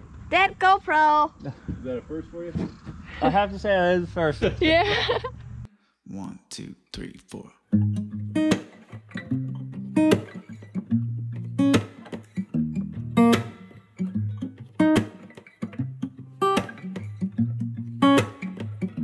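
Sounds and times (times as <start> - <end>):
strummed acoustic guitar: 7.7 - 19.0.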